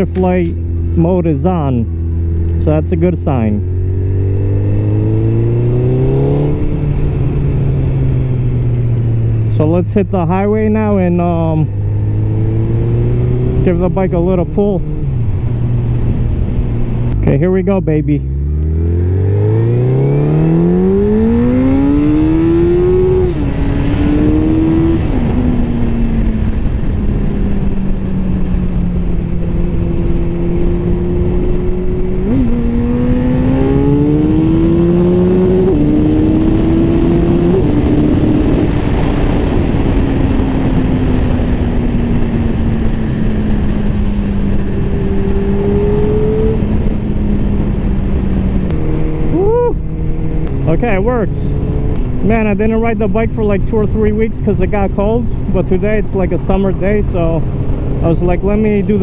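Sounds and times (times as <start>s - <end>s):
motorcycle engine accelerating: 0.0s - 59.0s
wind rush: 10.7s - 17.3s, 18.7s - 59.0s.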